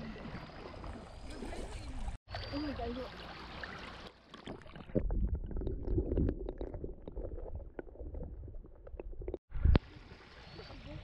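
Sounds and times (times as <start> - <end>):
underwater river rumbling and gurgling: 4.4 - 9.8.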